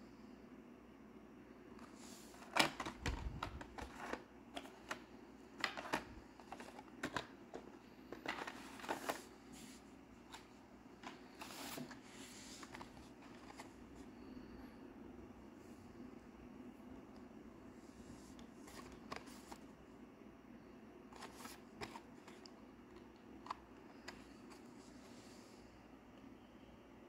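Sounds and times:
plastic packaging clicking and crinkling: 2.4s - 9.3s.

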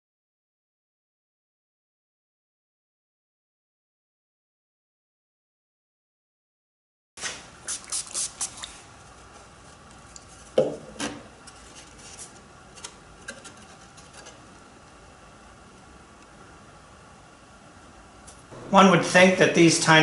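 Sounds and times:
glue bottle hissing puffs: 7.2s - 8.9s
knock on wood: 10.6s - 10.8s.

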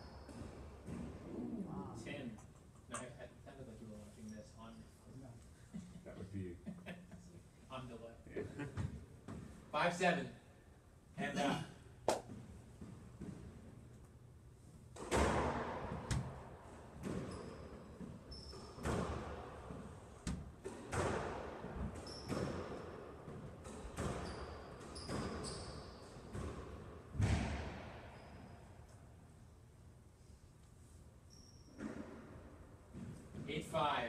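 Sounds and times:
squash ball hitting racquets and walls: 0.2s - 1.3s, 14.9s - 28.5s, 31.7s - 33.5s
shoes squeaking on court floor: 17.1s - 19.1s, 21.9s - 22.7s, 23.3s - 26.6s, 28.1s - 28.7s, 31.3s - 32.2s.

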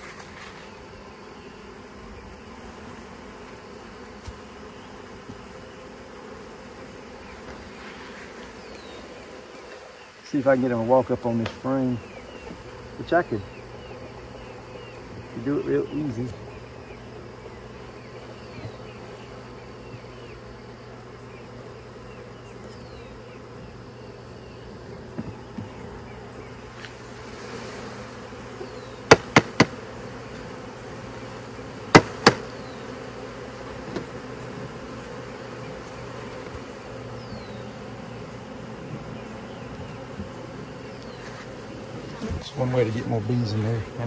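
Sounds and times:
bee swarm buzzing: 0.0s - 44.0s
sharp wooden knocks: 29.1s - 29.8s, 31.9s - 32.4s.

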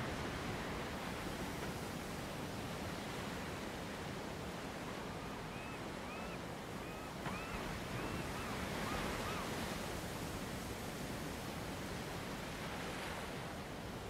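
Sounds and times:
sea surf washing on shore: 0.0s - 5.4s, 6.5s - 14.0s
bird calling: 5.5s - 9.6s.

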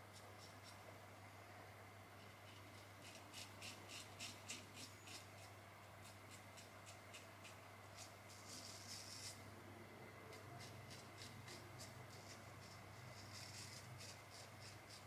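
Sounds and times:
razor scraping stubble: 2.4s - 9.4s, 10.3s - 15.0s.

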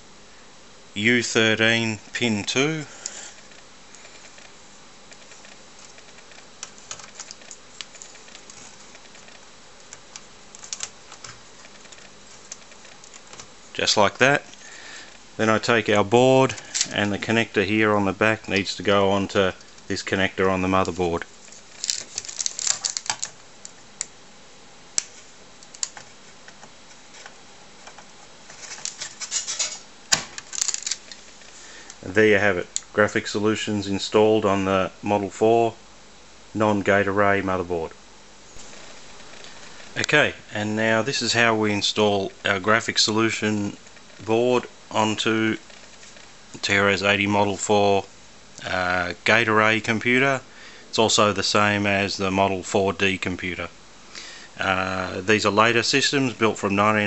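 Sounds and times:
steady low hiss: 0.0s - 57.0s
circuit board clicking and scraping: 3.0s - 13.5s.

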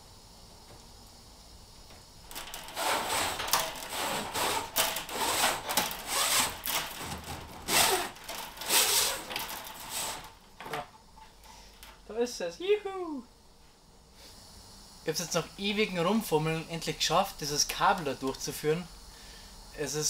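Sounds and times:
cable and rod scraping: 2.3s - 10.4s.

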